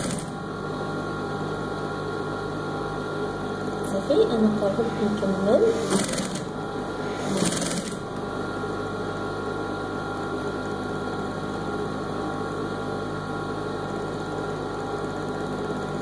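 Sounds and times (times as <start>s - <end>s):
sewing machine running: 0.0s - 0.4s, 4.8s - 8.1s.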